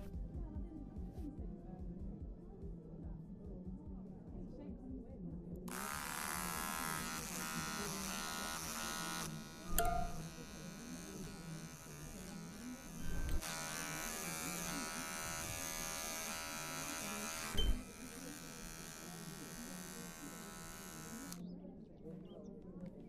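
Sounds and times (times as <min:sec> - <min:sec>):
electric hair clipper buzzing: 0:05.7 - 0:21.4.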